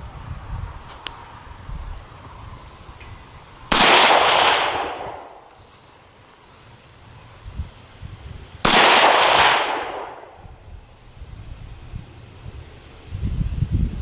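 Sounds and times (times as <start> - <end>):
rifle shot: 3.7 - 5.4, 8.6 - 10.4.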